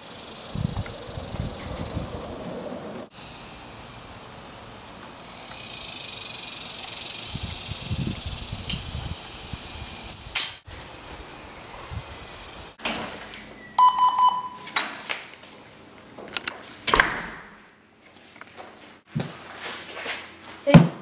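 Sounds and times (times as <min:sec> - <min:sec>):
door thuds and clicks: 0:16.9 - 0:17.6.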